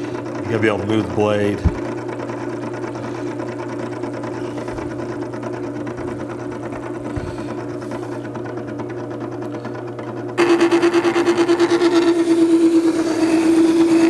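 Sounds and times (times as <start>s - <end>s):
sharpener motor humming: 0.0s - 14.0s.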